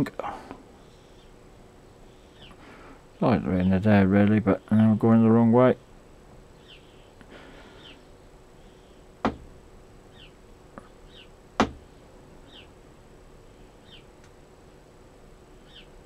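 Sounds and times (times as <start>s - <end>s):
bird chirping: 0.8s - 2.6s, 5.8s - 9.1s, 10.0s - 12.8s, 13.8s - 14.1s, 15.6s - 16.0s
sharp knocks: 9.2s - 9.6s, 11.6s - 11.8s.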